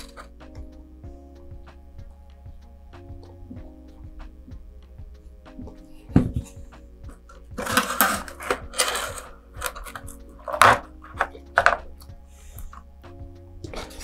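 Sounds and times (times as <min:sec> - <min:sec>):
cardboard and wood scraping: 0:07.6 - 0:11.9.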